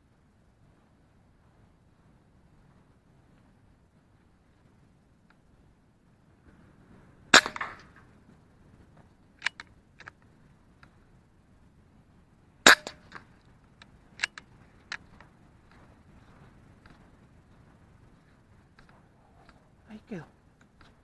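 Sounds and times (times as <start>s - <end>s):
rifle shot crack: 7.3s - 7.9s, 12.6s - 13.2s.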